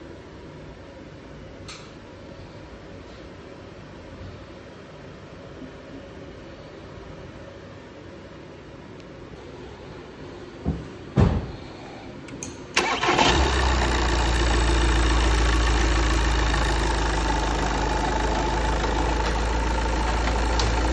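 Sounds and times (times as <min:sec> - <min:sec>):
diesel engine cranking and idling: 0:12.7 - 0:20.9.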